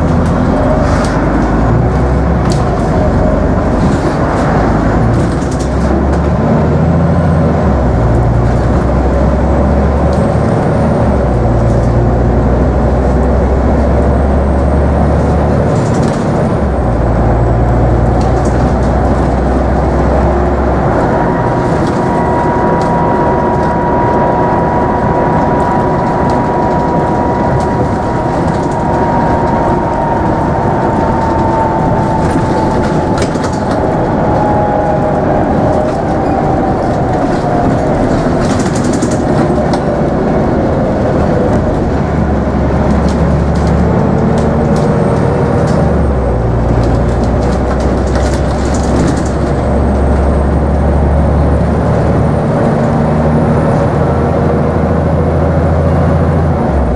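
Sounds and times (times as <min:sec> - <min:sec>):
bus engine and road noise: 0:00.0 - 0:56.9
deep engine drone: 0:00.0 - 0:56.9
whine falling in pitch: 0:19.4 - 0:38.4.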